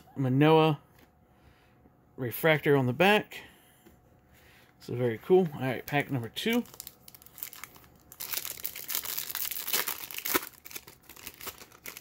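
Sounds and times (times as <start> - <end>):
foil wrapper tearing and crinkling: 6.4 - 12.0.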